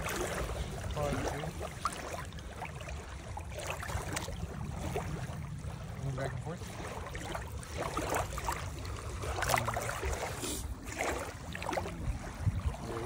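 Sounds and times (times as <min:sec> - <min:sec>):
small water splashes: 0:00.0 - 0:13.0
water lapping and sloshing: 0:00.0 - 0:13.0.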